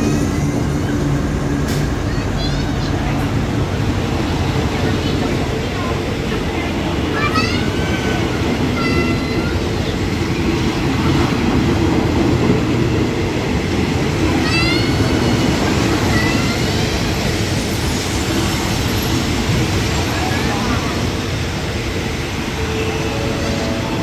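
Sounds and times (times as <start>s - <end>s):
train coaches rumbling: 0.0s - 24.0s.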